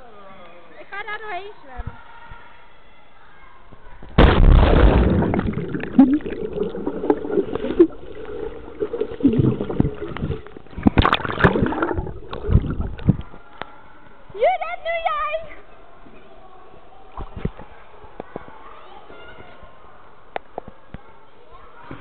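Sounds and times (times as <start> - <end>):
splash into water: 4.2 - 13.2
underwater gurgling and bubbling: 4.7 - 13.2.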